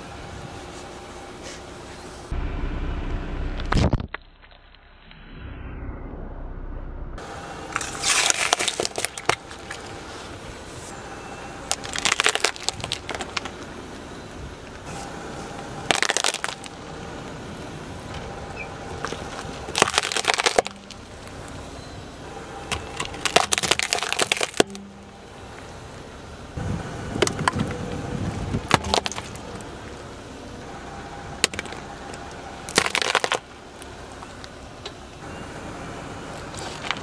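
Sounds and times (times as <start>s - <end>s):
tyre crushing gourds: 7.7s - 10.2s, 11.7s - 13.6s, 15.8s - 16.8s, 18.9s - 21.6s, 22.6s - 25.2s, 27.1s - 30.0s, 31.4s - 33.9s.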